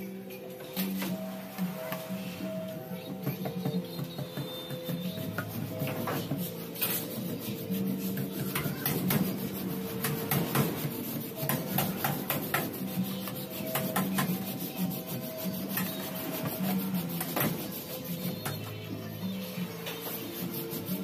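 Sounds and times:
background music: 0.0s - 21.0s
plastic pipe scraping: 3.4s - 18.8s.

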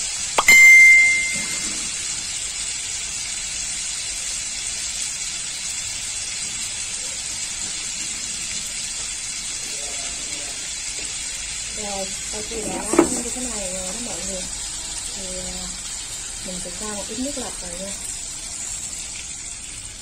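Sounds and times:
fish sizzling in oil: 0.0s - 20.0s
sharp metallic clink: 0.4s - 1.8s.

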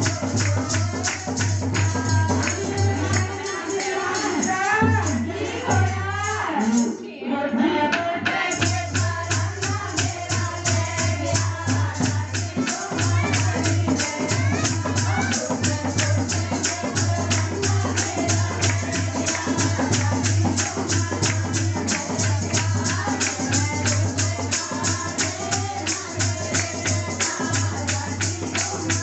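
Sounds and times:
rhythmic percussion beat: 0.0s - 7.0s, 7.6s - 29.0s
devotional singing: 0.0s - 29.0s.

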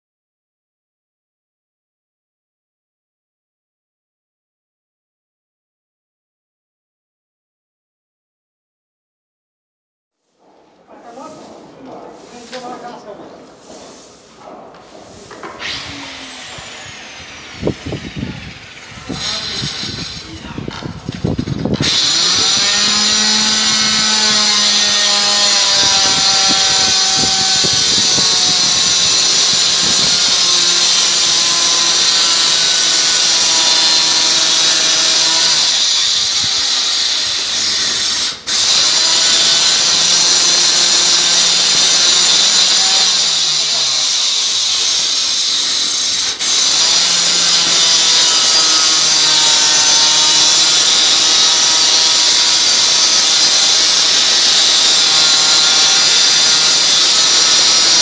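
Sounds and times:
electric power tool motor: 15.4s - 58.0s.

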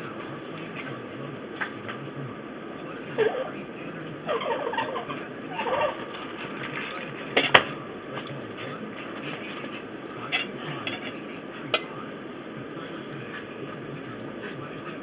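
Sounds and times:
fork clinking on plate: 4.3s - 12.0s.

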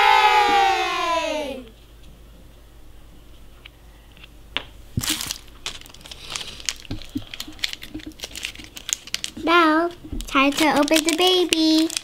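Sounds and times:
crinkling plastic wrapper: 5.0s - 12.0s.

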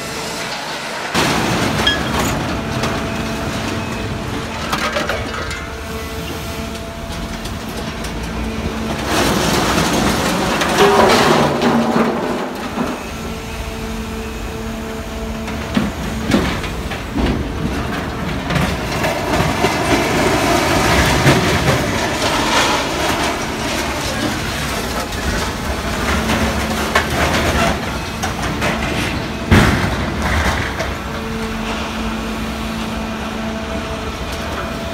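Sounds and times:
crane machine hum: 0.0s - 34.9s.

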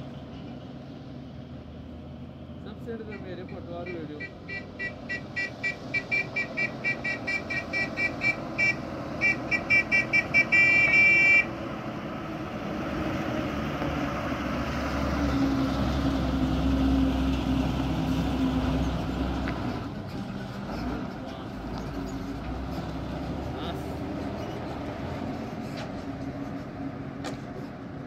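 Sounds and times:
bus diesel engine passing: 0.0s - 28.0s
bus horn toots and blast: 3.1s - 11.6s.

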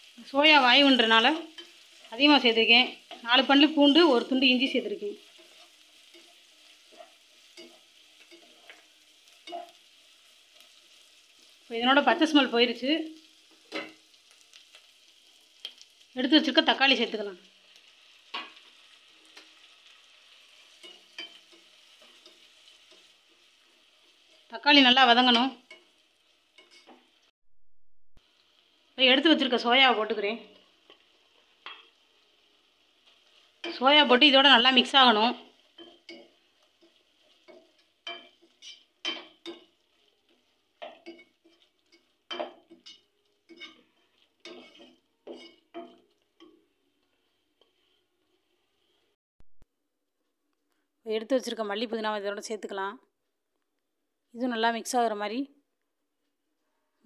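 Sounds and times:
vegetables sizzling in a pan: 0.0s - 27.3s, 28.2s - 49.2s
spatula scraping a pan: 5.2s - 11.6s, 18.1s - 24.5s, 25.2s - 27.2s, 35.4s - 49.2s.

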